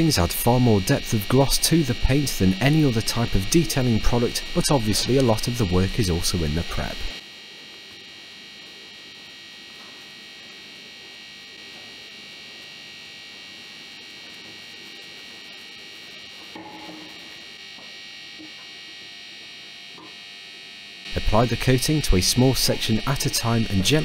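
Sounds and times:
high-pitched electrical whine: 0.0 - 24.0.

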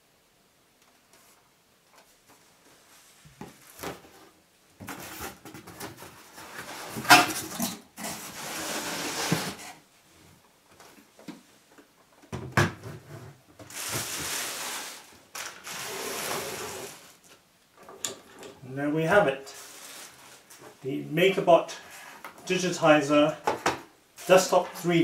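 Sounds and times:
cardboard box scraping on floor: 6.3 - 7.1, 8.0 - 9.8, 13.1 - 17.2, 19.5 - 20.6
packaging rustling: 13.7 - 17.4.

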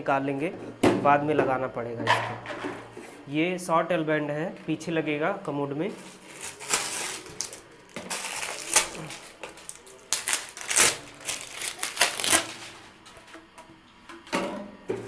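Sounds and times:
plastic bag crinkling: 6.0 - 13.2.

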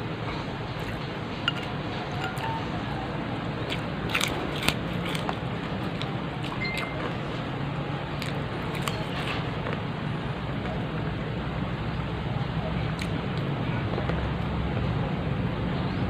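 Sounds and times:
person chewing food: 0.7 - 2.8, 3.6 - 7.2, 8.1 - 9.4.

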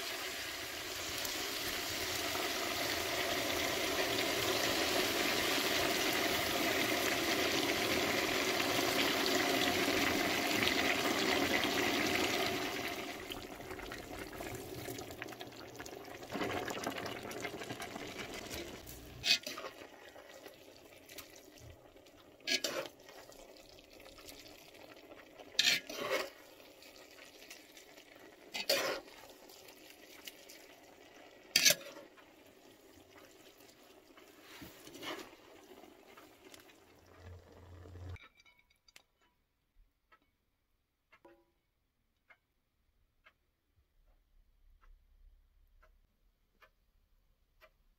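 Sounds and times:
sizzling hiss of water in hot oil: 0.0 - 12.6, 28.5 - 30.6.

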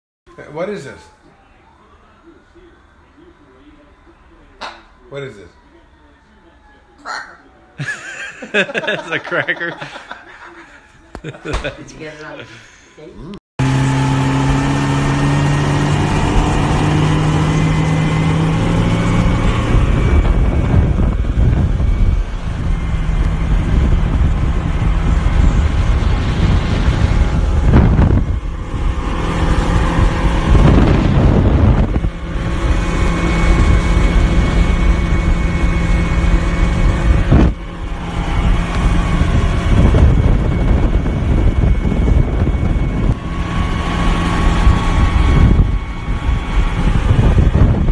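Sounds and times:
boat engine running: 13.6 - 47.9
wind: 13.6 - 47.9.

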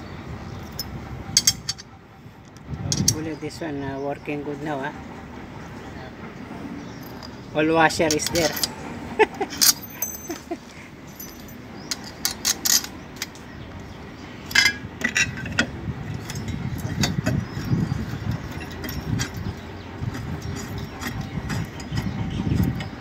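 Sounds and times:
metal clinking and clattering: 8.0 - 8.8, 9.4 - 13.4, 14.5 - 17.6, 18.3 - 19.6.

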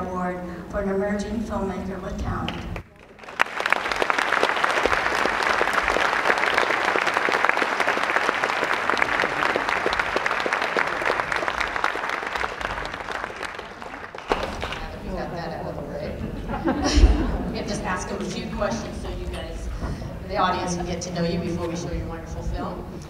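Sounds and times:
audience applauding: 2.8 - 15.0.

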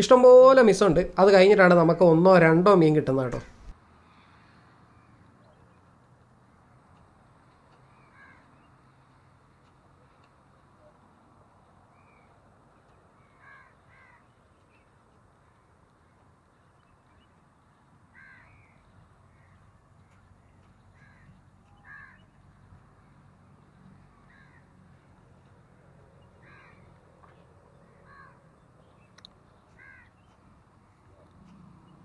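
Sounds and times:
crows cawing: 7.9 - 8.7, 13.2 - 14.4, 18.1 - 20.2, 20.9 - 22.4, 24.1 - 24.7, 26.4 - 28.6, 29.6 - 30.4.

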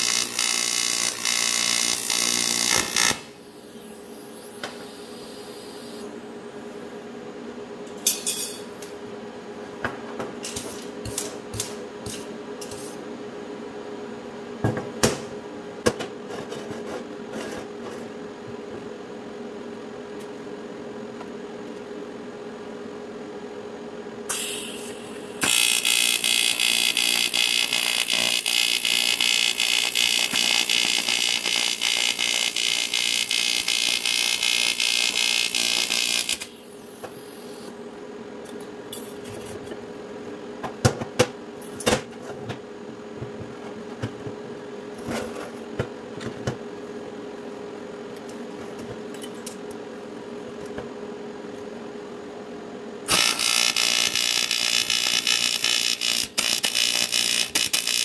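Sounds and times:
welding arc buzz: 0.0 - 6.1, 24.3 - 37.8, 53.0 - 58.0
steady hum: 2.0 - 57.9.

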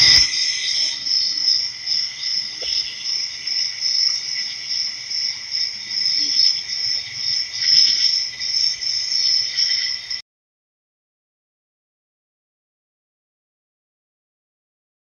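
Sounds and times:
crickets chirping: 0.0 - 10.2.

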